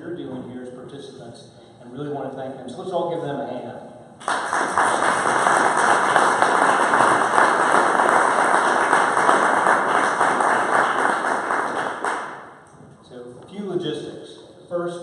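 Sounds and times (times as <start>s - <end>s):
audience applauding: 4.2s - 12.7s.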